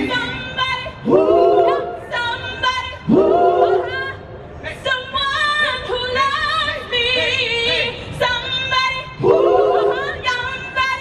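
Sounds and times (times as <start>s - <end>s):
a cappella group singing: 0.0s - 11.0s.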